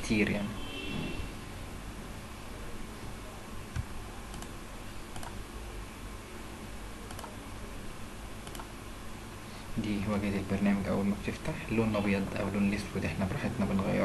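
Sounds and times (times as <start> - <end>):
microphone hum and hiss: 0.0 - 14.0
computer mouse clicks: 3.7 - 5.4, 7.1 - 7.4, 8.4 - 8.7.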